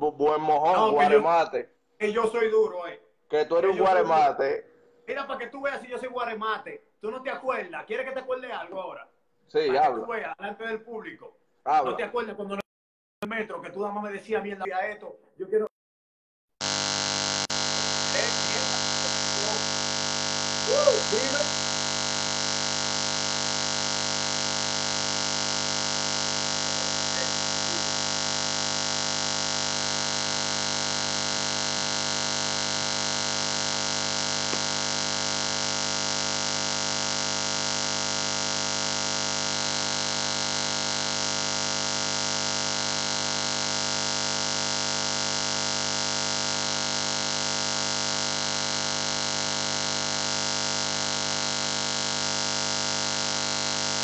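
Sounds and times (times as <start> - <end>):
electronic hiss and hum: 16.6 - 54.0
fixed electronic tones: 16.6 - 54.0.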